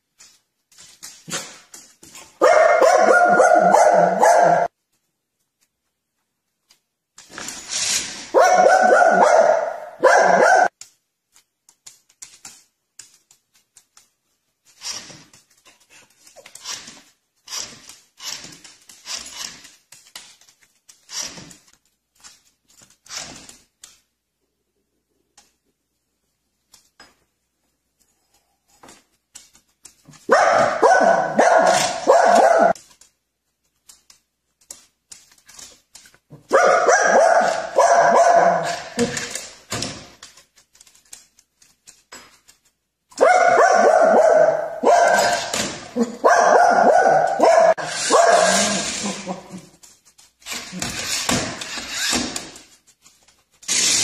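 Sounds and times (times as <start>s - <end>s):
dog barking and yipping: 2.2s - 4.7s, 8.0s - 10.8s, 30.1s - 33.0s, 36.4s - 39.5s, 43.1s - 49.8s.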